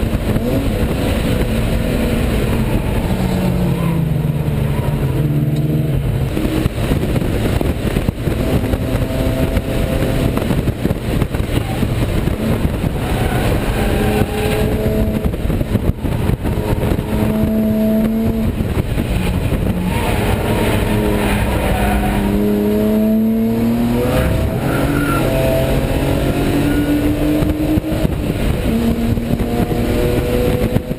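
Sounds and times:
race car engine revving: 0.0 - 30.9
road and wind noise: 0.0 - 30.9.

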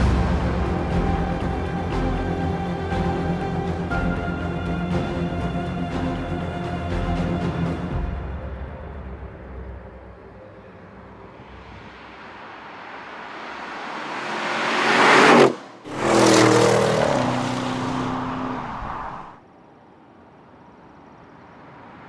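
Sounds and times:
car engine passing at speed: 11.3 - 19.4.

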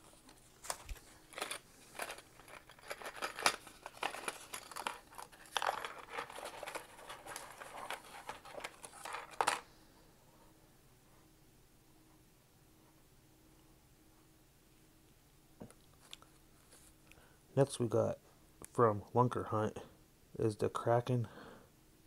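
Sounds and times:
paper packet crinkling: 0.0 - 9.6.

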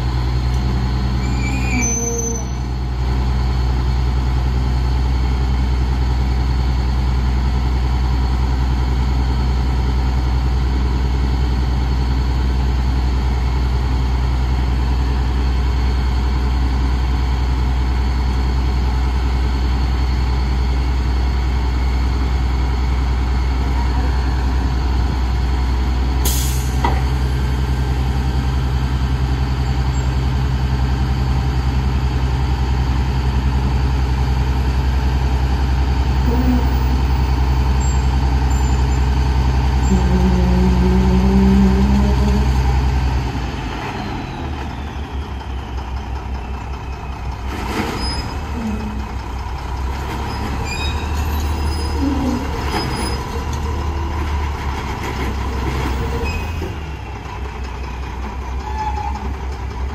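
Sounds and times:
diesel truck engine running: 0.0 - 1.7, 2.6 - 59.9
air brake hiss: 26.2 - 26.9.

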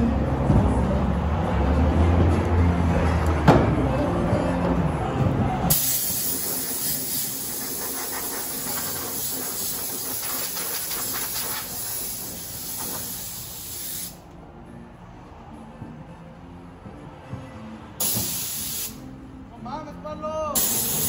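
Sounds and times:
spray gun hissing: 5.7 - 14.2, 18.0 - 19.0, 20.6 - 21.0.

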